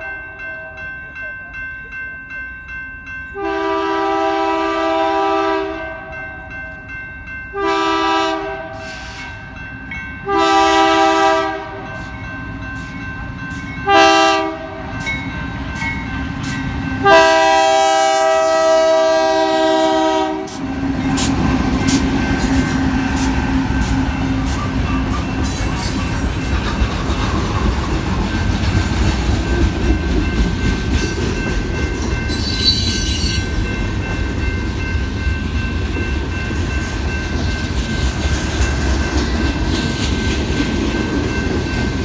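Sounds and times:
crossing bell ringing: 0.0s - 42.0s
diesel locomotives passing: 0.0s - 42.0s
train air horn blasts: 3.4s - 6.0s, 7.5s - 9.4s, 10.2s - 11.9s, 13.8s - 14.9s, 17.0s - 20.6s.

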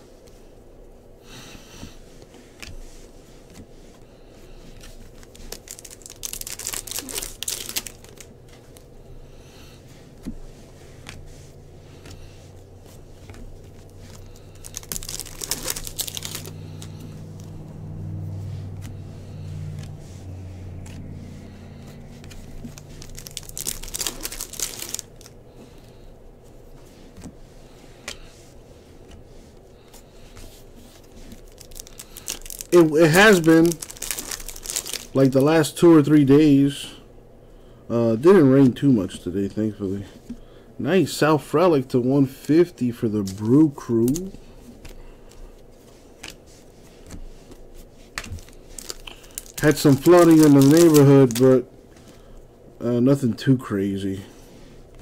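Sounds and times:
faint low hum: 0.0s - 55.0s
cards being shuffled: 4.5s - 35.5s, 42.8s - 52.3s
wrappers crinkling and tearing: 4.6s - 8.9s, 10.9s - 26.0s, 29.8s - 35.8s, 42.7s - 52.3s.

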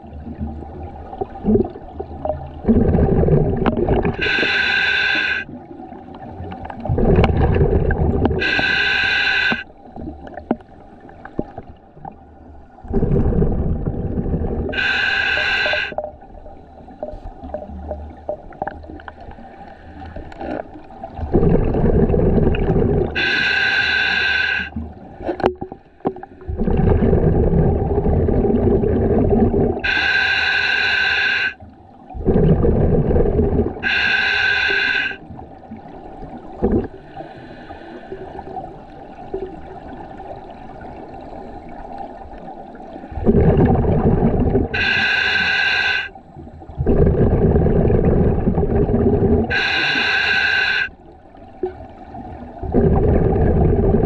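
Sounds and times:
exhaled bubbles rushing: 0.0s - 4.6s, 5.8s - 8.6s, 12.8s - 16.5s, 20.4s - 23.6s, 24.7s - 30.0s, 32.1s - 34.1s, 35.3s - 37.0s, 42.0s - 45.2s, 46.5s - 50.2s, 51.1s - 54.0s
regulator hiss on inhale: 4.2s - 5.5s, 8.4s - 9.7s, 14.7s - 16.0s, 19.2s - 20.6s, 23.1s - 24.8s, 29.8s - 31.6s, 33.8s - 35.2s, 37.0s - 38.5s, 44.7s - 46.4s, 49.5s - 51.0s.

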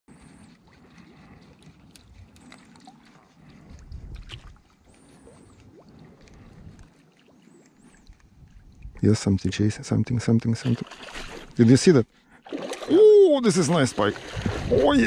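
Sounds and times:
water lapping: 0.1s - 15.0s
wind noise: 3.5s - 4.7s, 14.0s - 15.0s.

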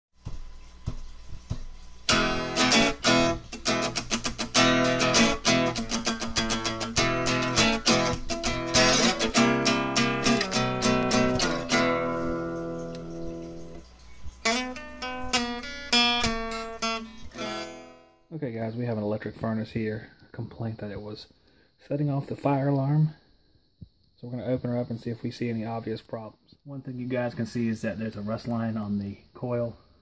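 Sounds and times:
acoustic guitar picking and strumming: 0.2s - 18.2s.

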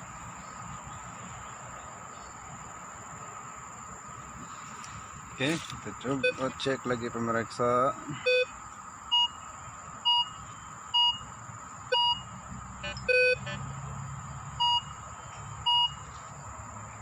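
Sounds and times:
metal detector beeping: 5.5s - 6.6s, 8.2s - 8.5s, 11.9s - 13.6s, 14.6s - 15.0s, 15.7s - 16.0s.

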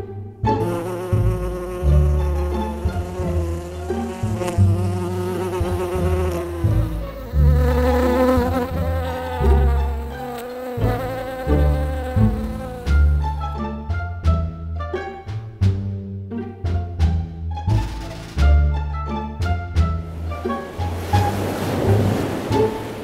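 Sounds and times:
bee buzzing drone: 0.4s - 13.6s.

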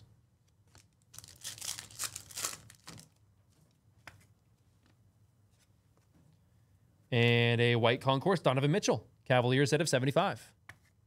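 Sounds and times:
cards rustling against each other: 0.6s - 4.9s.

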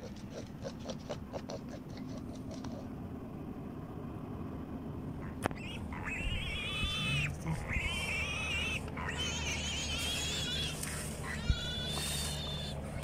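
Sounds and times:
animal high wavering calls: 5.2s - 13.0s.

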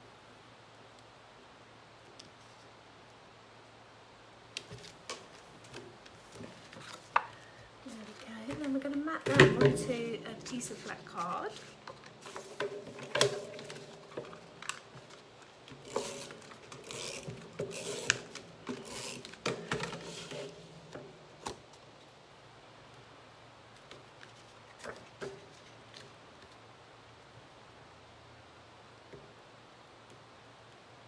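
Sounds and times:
card and paper rustling and tapping: 4.6s - 21.8s.

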